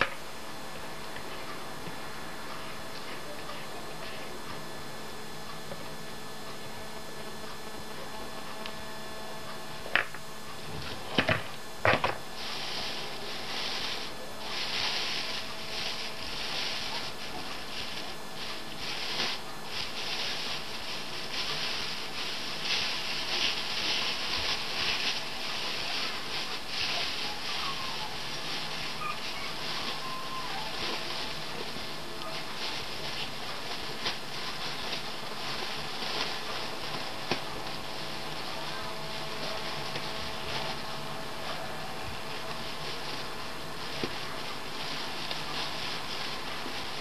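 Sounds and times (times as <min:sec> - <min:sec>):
plastic bags crinkling: 0:10.8 - 0:47.0.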